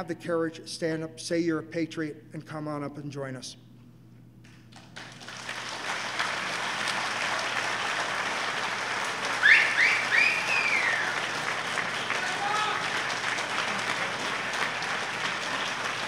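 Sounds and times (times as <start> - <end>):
crowd applauding: 4.8 - 16.0
shouted cheers: 9.2 - 16.0.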